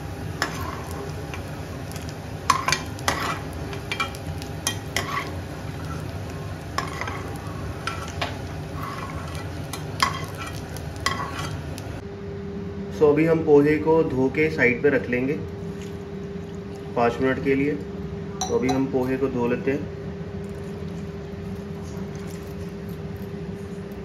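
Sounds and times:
hot oil sizzling: 0.0s - 12.0s
metal spoon scraping pan: 2.5s - 6.1s, 6.8s - 11.6s.

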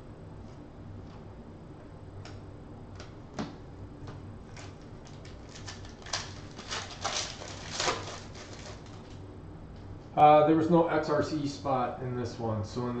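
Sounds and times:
foil card pack crinkling and tearing: 4.5s - 9.2s.

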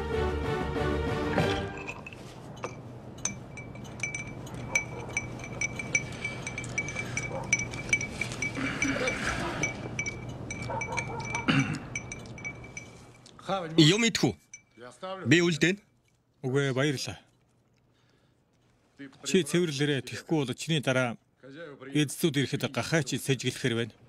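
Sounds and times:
teaspoon clinking in a glass: 1.5s - 13.3s, 14.4s - 14.8s.

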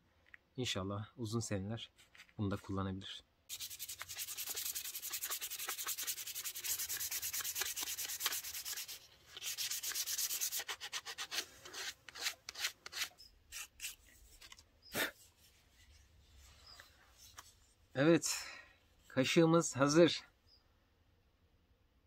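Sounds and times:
sandpaper rubbing wood: 3.5s - 14.4s.

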